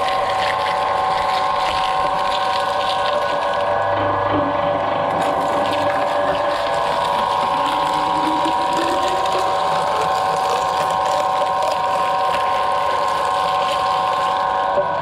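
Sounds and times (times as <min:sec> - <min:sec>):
tree trunk crackling and crunching: 0:00.0 - 0:03.9, 0:05.1 - 0:15.0
shredder drive whining: 0:00.0 - 0:15.0.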